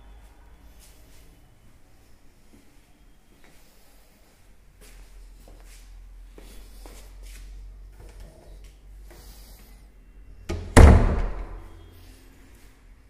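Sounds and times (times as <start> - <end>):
door banging shut: 10.5 - 11.7.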